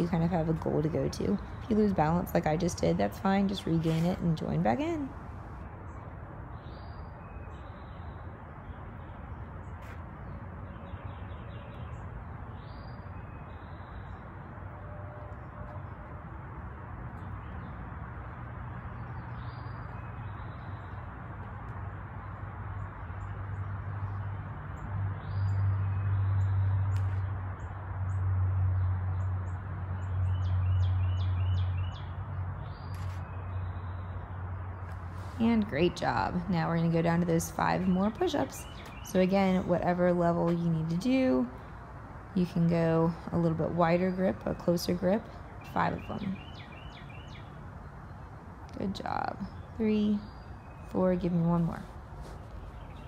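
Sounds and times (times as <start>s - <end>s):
steady outdoor hiss: 0.0s - 53.0s
birds chirping: 28.8s - 53.0s.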